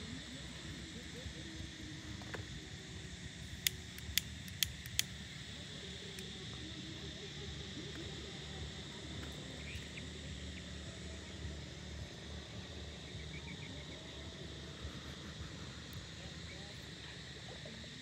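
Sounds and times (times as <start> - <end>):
high-pitched insect drone: 0.0 - 18.0
sharp clicks: 3.4 - 5.3.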